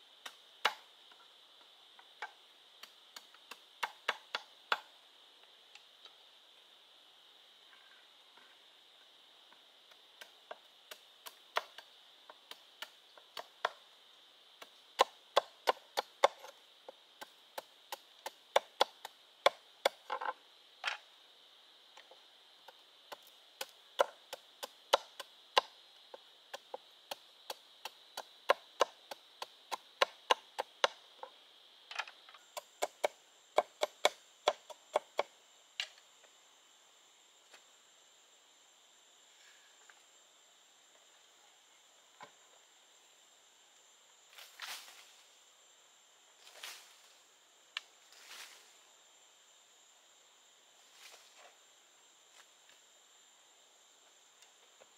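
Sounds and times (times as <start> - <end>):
insects droning: 0.0 - 54.9
bamboo being chopped with a blade: 0.2 - 0.9, 15.0 - 16.6, 17.6 - 20.1, 32.6 - 35.3.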